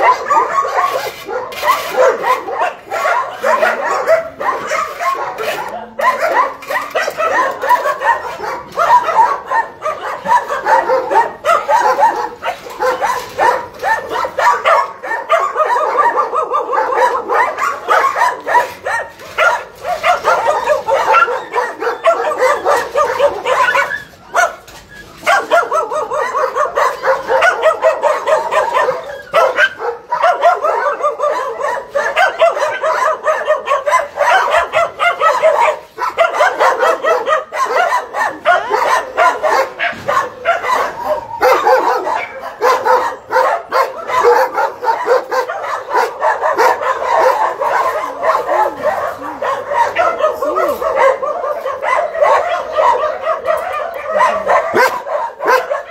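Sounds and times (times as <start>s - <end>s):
dogs barking and yelping: 0.0s - 55.9s.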